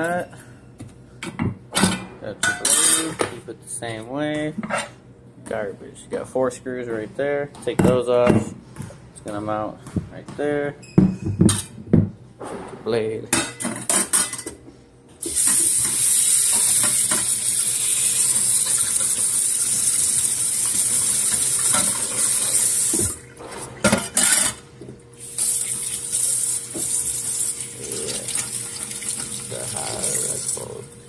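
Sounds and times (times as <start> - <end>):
faucet water into steel sink: 15.3 - 23.2, 25.2 - 30.8.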